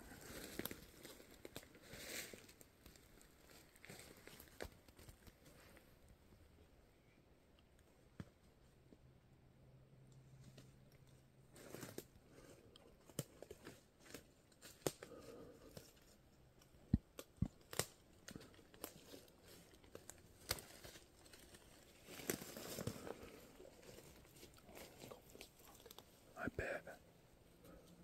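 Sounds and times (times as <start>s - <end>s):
rustling: 10.2s - 26.4s
sharp clicks and cracks: 16.6s - 19.1s.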